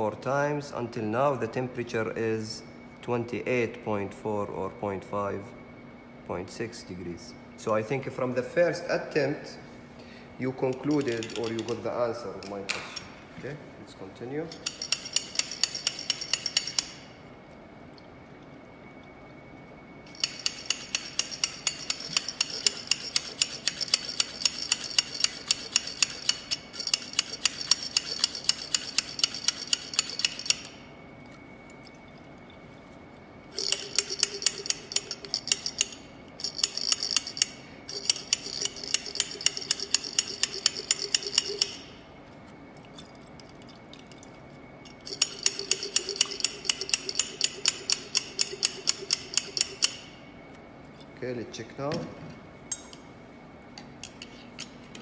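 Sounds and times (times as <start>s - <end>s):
stirrer rod clicking on metal cup: 14.6s - 17.0s, 20.1s - 30.7s, 33.5s - 41.8s, 44.9s - 50.0s.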